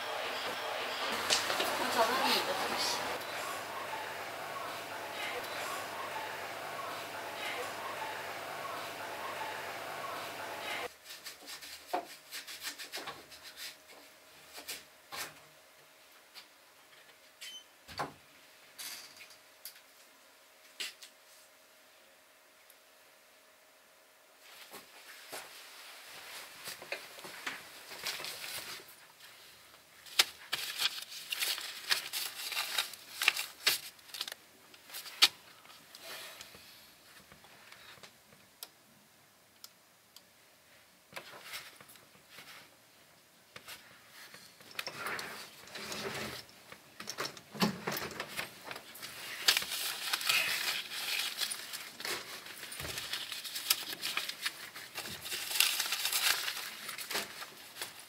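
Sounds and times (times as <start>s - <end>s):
banknotes rustling: 0.0s - 11.8s, 30.0s - 35.4s, 48.8s - 58.0s.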